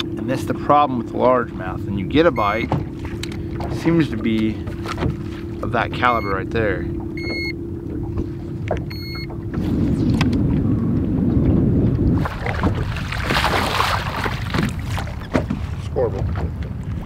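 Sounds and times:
steady hum: 0.0 - 15.2
low rumble of water: 0.0 - 17.0
electronic beeps: 2.4 - 2.7, 6.1 - 6.4, 7.2 - 7.6, 8.9 - 9.3
fish splashing at the surface: 12.2 - 15.3.

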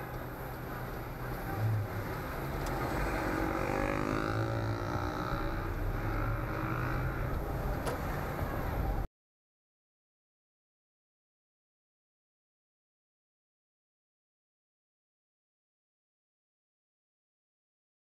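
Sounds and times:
car engine hum and road noise: 0.0 - 9.1
engine accelerating: 1.5 - 7.5.

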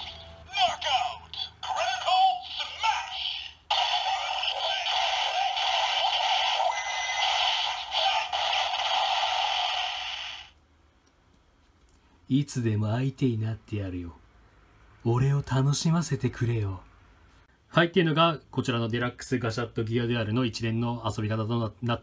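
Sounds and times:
toy electronic voice call: 0.0 - 8.7.

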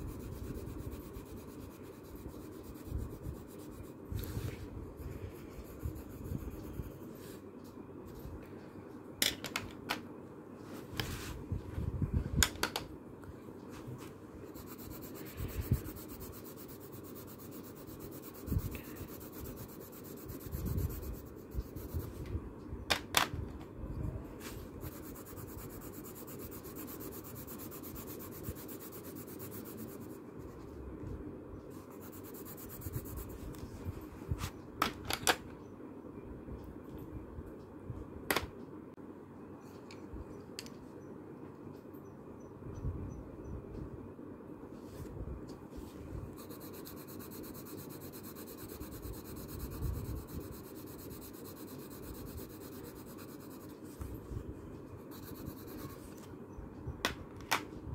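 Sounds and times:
pencils scratching on paper: 0.0 - 7.4, 14.5 - 22.3, 24.4 - 30.7, 31.7 - 33.7, 46.4 - 54.4, 55.0 - 56.3
steady hum: 0.0 - 57.9.

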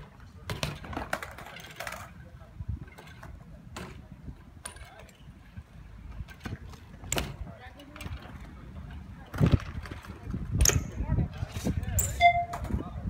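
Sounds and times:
bike tyres rumbling on concrete: 0.0 - 13.0.

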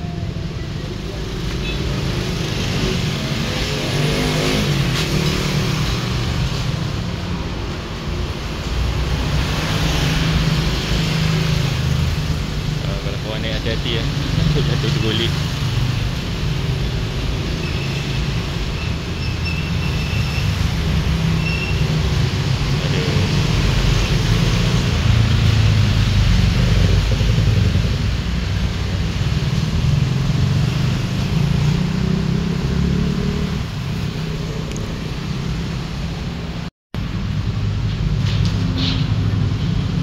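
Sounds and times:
road traffic rumble: 0.0 - 40.0.

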